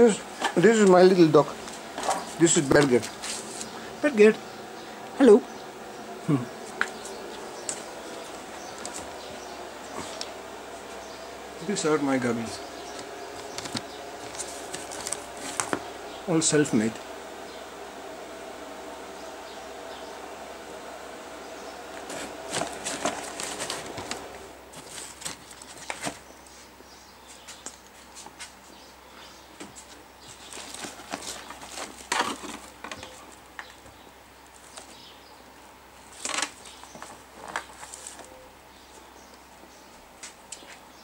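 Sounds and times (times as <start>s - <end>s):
plastic and cardboard handling noise: 12.9s - 15.9s, 22.0s - 26.3s, 29.6s - 33.3s.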